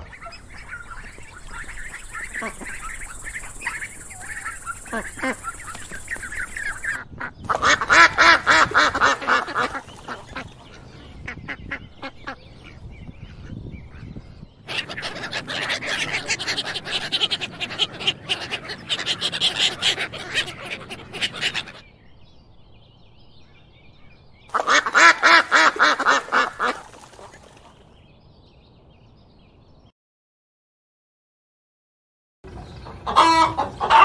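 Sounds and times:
ducks quacking: 0.0 - 21.9, 24.5 - 27.9, 32.5 - 34.0.

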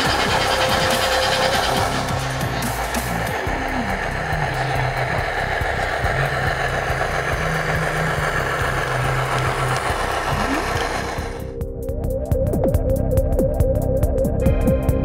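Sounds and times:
model train diesel engine sound: 0.0 - 11.7.

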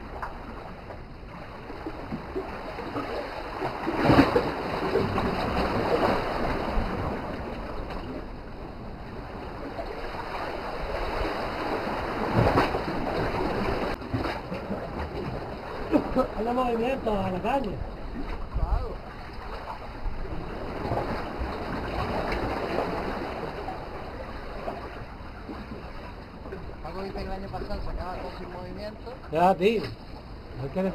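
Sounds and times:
waves washing against rocks: 1.5 - 8.3, 9.1 - 25.0.

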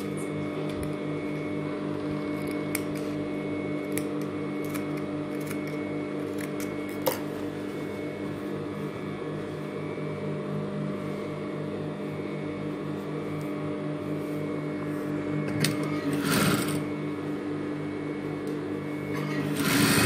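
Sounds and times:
sewing machine motor hum: 15.4 - 17.3, 18.8 - 20.0.

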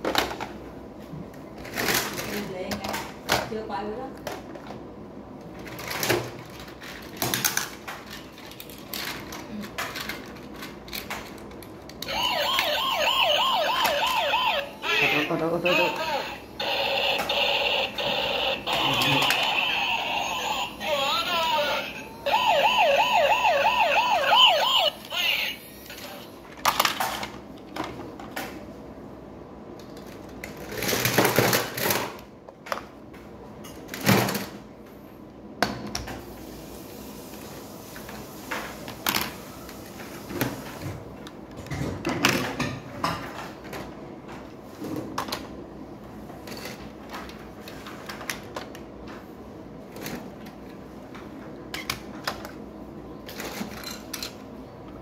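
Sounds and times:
toy ambulance siren warbling: 12.0 - 26.2.

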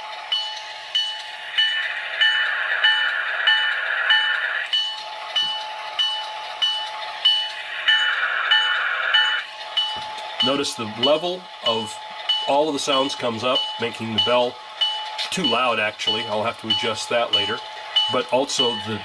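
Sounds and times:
locomotive bell ringing: 0.0 - 19.0
diesel engine idling: 7.0 - 19.0.

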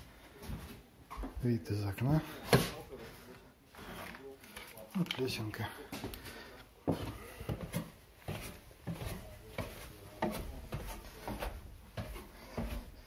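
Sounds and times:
boot footsteps on wooden stairs: 5.8 - 13.0.

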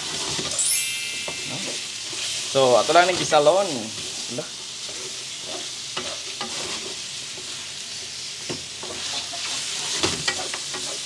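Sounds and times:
chicken sizzling in a wok: 0.0 - 11.0
wooden spatula scraping pan: 4.8 - 7.1, 8.8 - 11.0.

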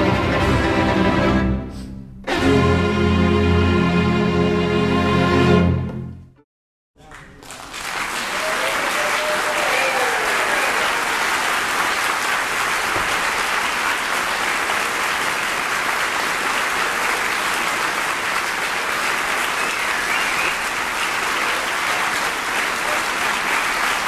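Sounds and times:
audience applauding: 7.0 - 24.0.

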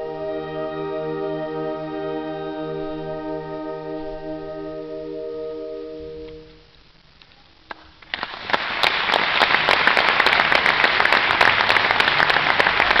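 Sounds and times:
audience applause: 8.0 - 13.0.

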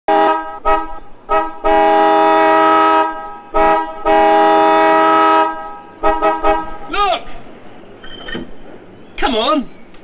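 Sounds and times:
car horn honking: 0.1 - 7.2.

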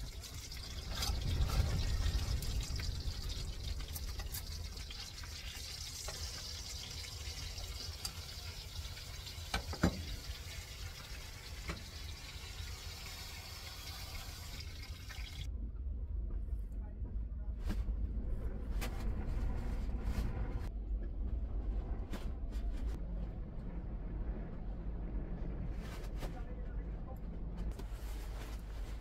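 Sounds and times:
meat sizzling in a frying pan: 0.1 - 15.5.

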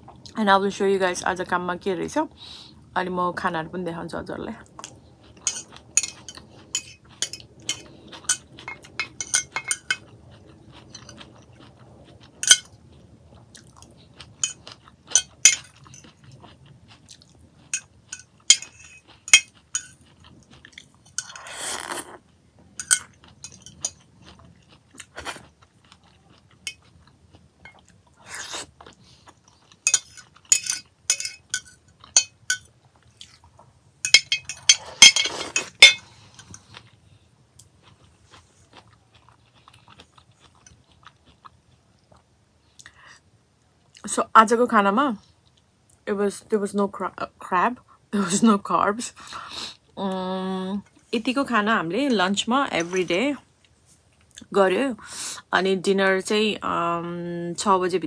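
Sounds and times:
chewing: 4.7 - 37.0, 37.6 - 43.0
fork scraping glass dish: 5.4 - 10.0, 12.4 - 12.7, 17.7 - 20.0, 29.9 - 32.6, 34.1 - 36.5.

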